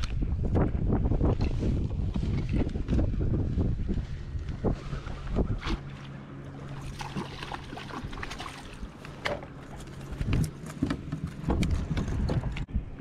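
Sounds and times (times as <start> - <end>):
low steady hum: 0.0 - 13.0
water lapping against hull: 4.0 - 12.5
knocks and clicks from boat: 8.0 - 12.7.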